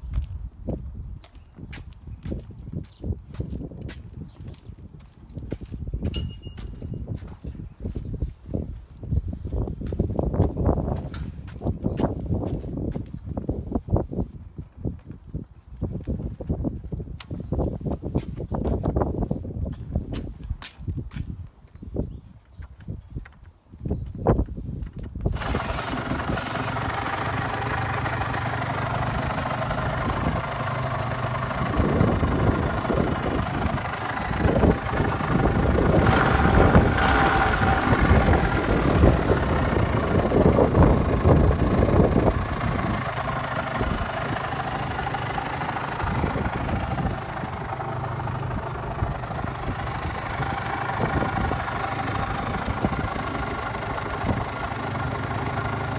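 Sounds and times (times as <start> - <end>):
motorcycle engine idling and revving: 25.2 - 55.9.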